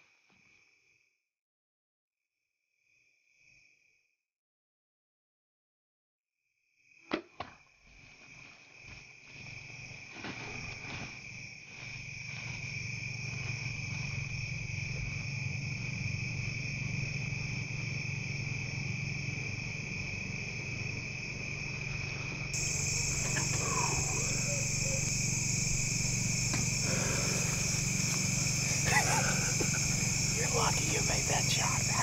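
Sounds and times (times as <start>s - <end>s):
crickets chirping: 2.8s - 4.0s, 6.7s - 32.0s
low steady hum: 22.6s - 32.0s.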